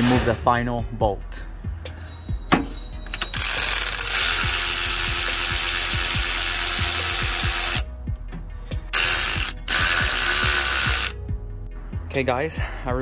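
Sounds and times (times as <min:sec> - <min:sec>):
regular ticking: 0:02.6 - 0:07.9, 0:08.9 - 0:11.2
electric ratchet spinning: 0:03.2 - 0:07.9, 0:08.9 - 0:11.2.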